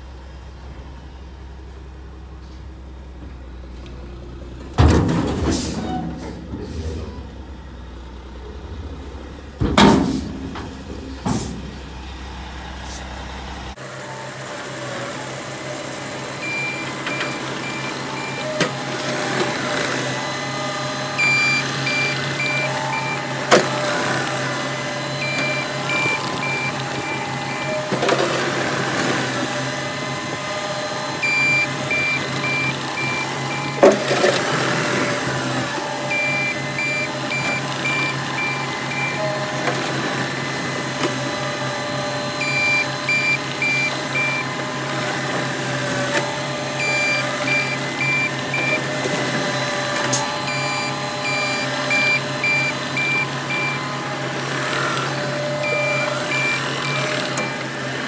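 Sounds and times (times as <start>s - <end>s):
diesel engine under load: 0.0s - 58.0s
backup alarm beeping: 16.4s - 18.6s, 21.2s - 28.0s, 31.2s - 33.9s, 36.0s - 39.4s, 42.4s - 44.5s, 46.8s - 48.9s, 50.3s - 53.9s, 55.5s - 57.6s.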